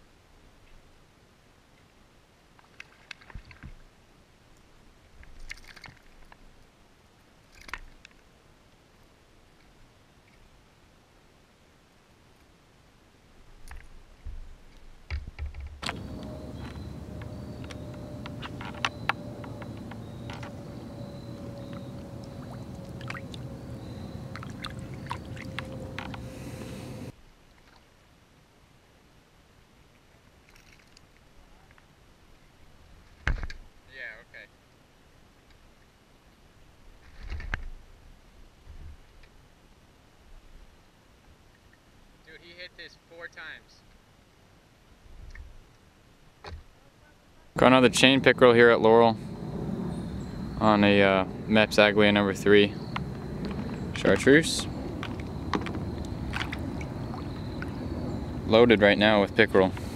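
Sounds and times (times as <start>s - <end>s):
water sloshing and dripping: 2.6s - 3.8s, 5.2s - 6.4s, 15.8s - 27.9s, 30.4s - 31.3s, 50.0s - 59.9s
small splashes: 5.3s - 6.3s, 15.8s - 27.9s, 30.4s - 31.3s, 52.5s - 58.5s
faint clicking and crackling: 14.6s - 27.8s
faint steady hum: 15.8s - 29.9s, 43.5s - 59.9s.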